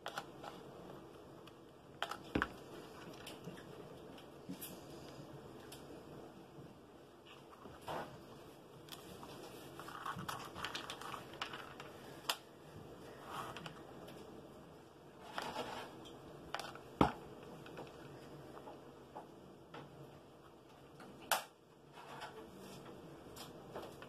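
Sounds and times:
hands handling paper crafts: 7.3 - 14.2.

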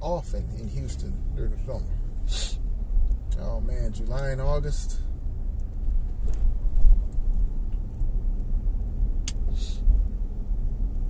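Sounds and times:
car cabin road rumble: 0.0 - 11.0
short hiss: 2.2 - 2.6, 9.5 - 9.8.

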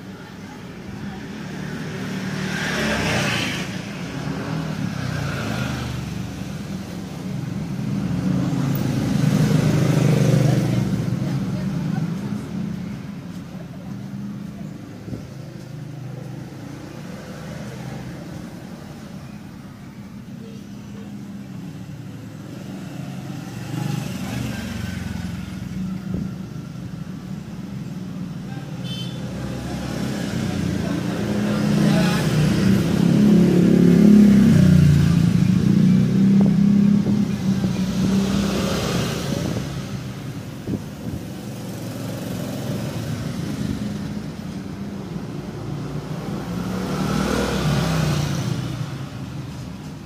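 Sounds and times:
rush of vehicle passing: 1.0 - 13.3, 29.2 - 50.0.

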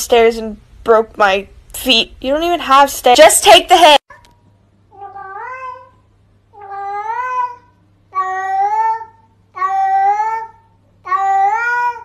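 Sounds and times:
cat meowing: 5.0 - 5.9.

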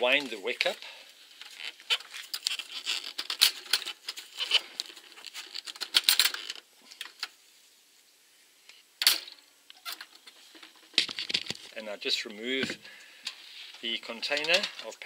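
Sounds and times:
metal clicking and rattling: 2.3 - 7.2, 14.0 - 15.0.

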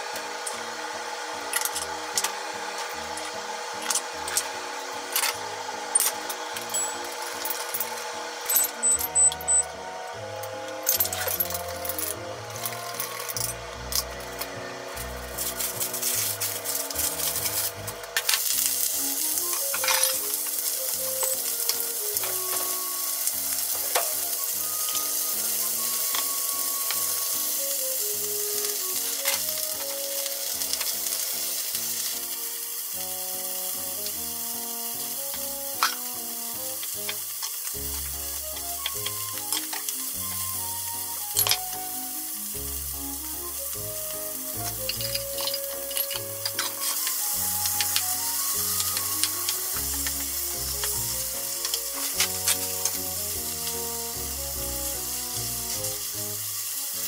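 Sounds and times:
soft background music: 0.0 - 57.0
meat sizzling in a frying pan: 13.8 - 57.0.

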